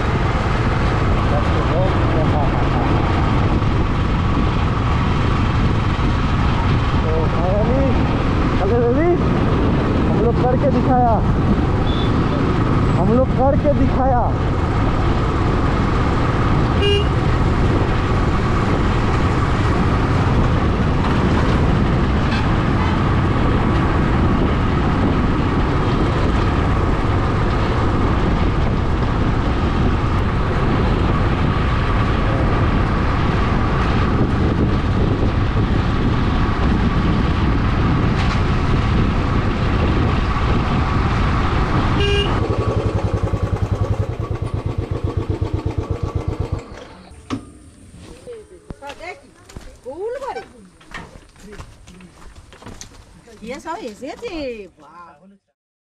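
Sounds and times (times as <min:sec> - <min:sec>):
motorcycle engine: 0:00.0 - 0:49.1
road noise: 0:00.0 - 0:55.6
motorcycle horn toot: 0:11.8 - 0:12.3, 0:16.8 - 0:17.3, 0:42.0 - 0:42.5.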